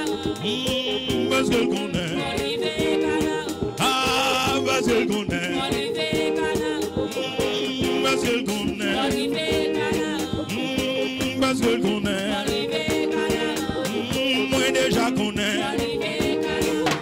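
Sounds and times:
man singing into a microphone: 0.0 - 2.9, 3.7 - 6.0, 7.1 - 17.0
instrumental accompaniment with beat: 0.0 - 17.0.

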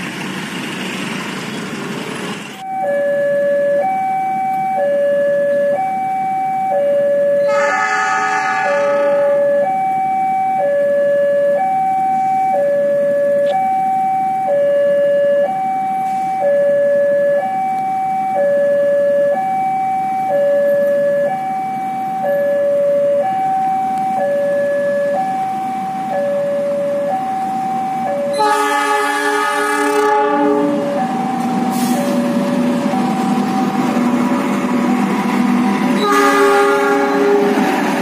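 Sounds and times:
level crossing two-tone alarm: 2.6 - 34.0
train horn blast: 7.4 - 9.7, 28.3 - 30.9, 35.9 - 37.6.

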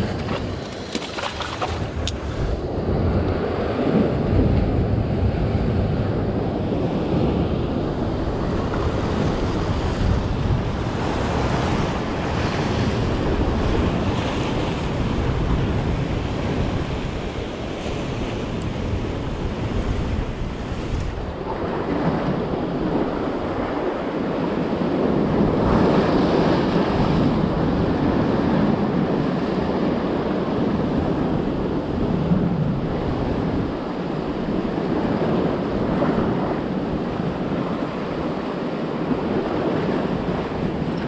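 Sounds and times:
waves washing against rocks: 0.0 - 3.7
wind on microphone: 0.0 - 41.0.

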